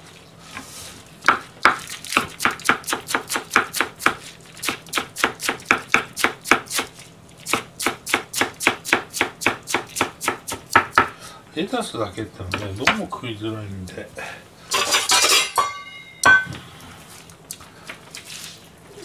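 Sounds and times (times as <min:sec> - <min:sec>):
knife chopping on wooden board: 0:01.2 - 0:06.9, 0:07.5 - 0:11.1.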